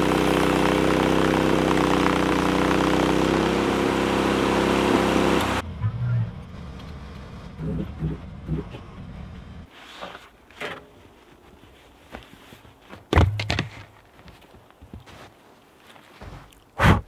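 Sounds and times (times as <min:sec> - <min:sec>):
low hum: 0:05.4 - 0:09.7
footsteps crunching in snow: 0:11.0 - 0:16.7.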